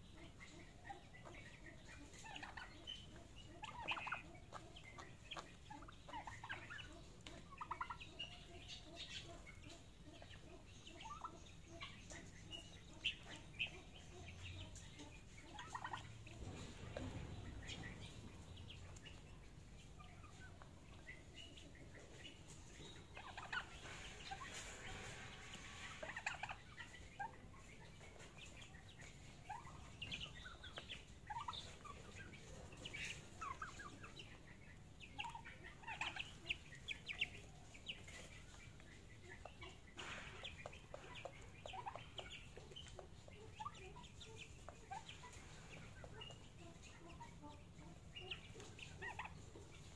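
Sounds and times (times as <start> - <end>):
young turkeys and chickens calling: 0.0 - 49.9.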